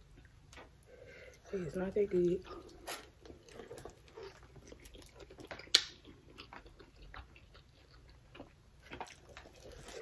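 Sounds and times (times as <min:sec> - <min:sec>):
people chewing: 0:02.4 - 0:10.0.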